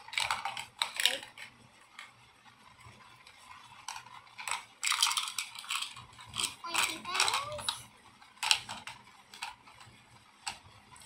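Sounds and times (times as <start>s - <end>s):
plastic toy lockers clicking: 0.0s - 1.4s.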